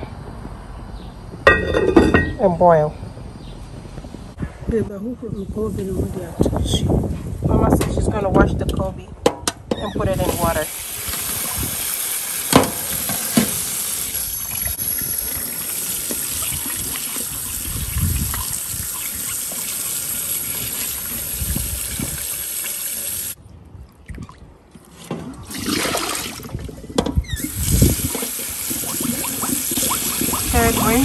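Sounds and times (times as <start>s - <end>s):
tap water running into a bowl: 10.2s - 23.4s, 27.4s - 31.0s
water splashing: 25.4s - 31.0s.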